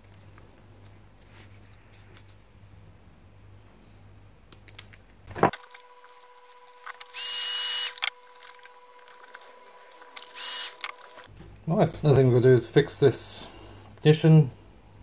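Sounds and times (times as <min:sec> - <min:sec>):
heat gun blowing: 0:06.8 - 0:09.5, 0:10.1 - 0:11.3.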